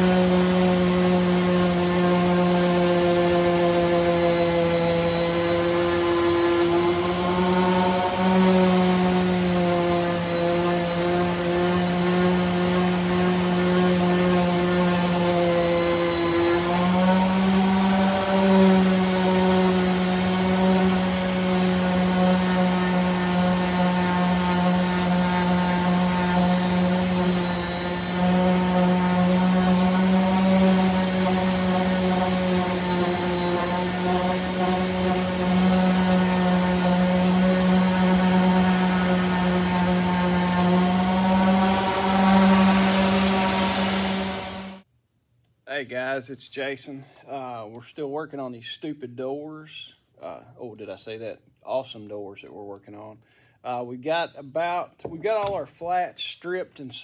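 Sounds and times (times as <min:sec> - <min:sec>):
orbital sander droning: 0:00.0 - 0:44.9.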